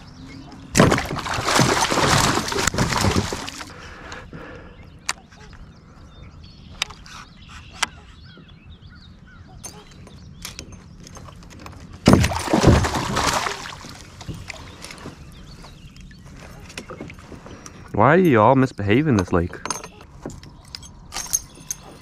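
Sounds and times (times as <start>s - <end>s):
fish thrashing splash: 0.8s - 3.8s, 12.1s - 14.1s.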